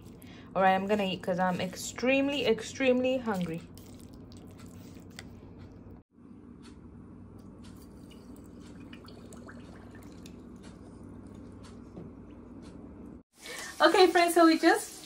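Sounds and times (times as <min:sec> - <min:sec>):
low steady hum: 0:00.0 - 0:13.2
juice trickling into a glass: 0:08.0 - 0:10.6.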